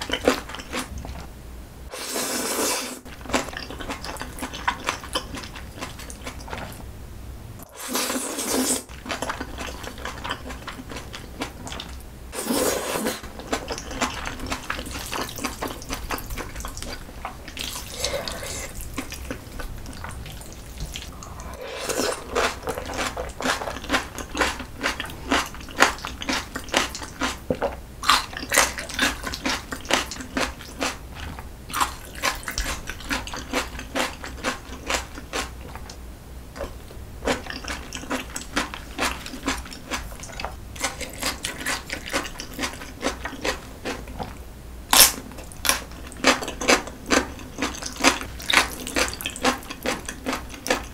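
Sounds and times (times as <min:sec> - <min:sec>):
wet slurping of noodles: 0:01.9 - 0:03.0, 0:07.7 - 0:08.9, 0:12.4 - 0:13.2, 0:19.9 - 0:23.6
sharp crunchy bite: 0:44.9 - 0:45.8.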